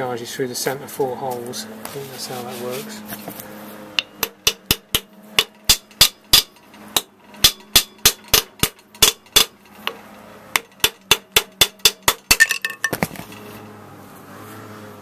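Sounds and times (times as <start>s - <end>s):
hammer striking metal: 4.0s - 9.6s, 10.5s - 12.9s.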